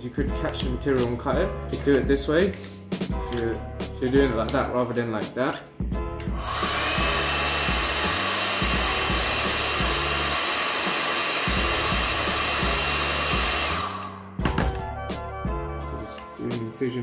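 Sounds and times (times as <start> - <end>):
heat gun blowing: 6.2 - 14.4.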